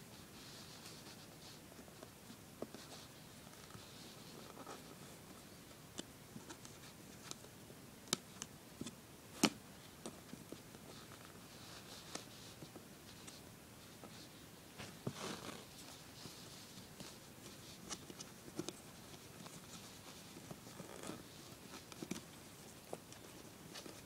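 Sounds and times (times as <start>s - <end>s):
fabric rustling and scraping: 10.5s - 24.0s.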